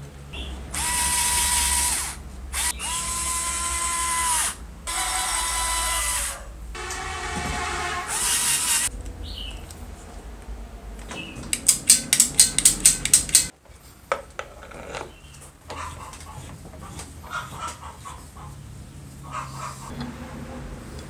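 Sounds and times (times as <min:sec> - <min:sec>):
chicken clucking: 0:15.7 - 0:18.6.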